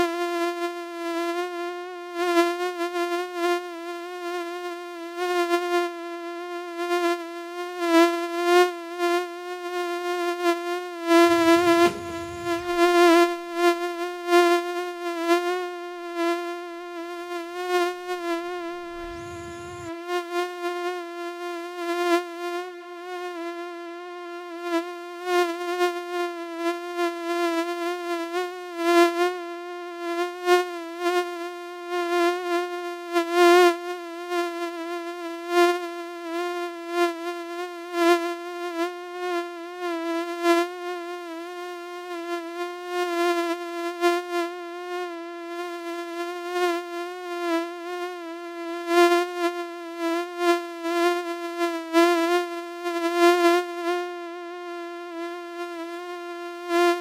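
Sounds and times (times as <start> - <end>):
mosquito wingbeat whine: 11.1 - 13.7, 18.2 - 26.8.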